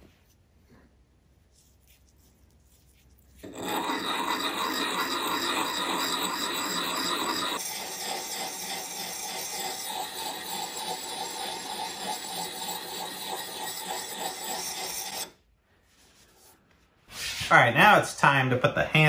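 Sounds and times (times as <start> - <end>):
stone scraping steel edge: 3.4 - 15.4.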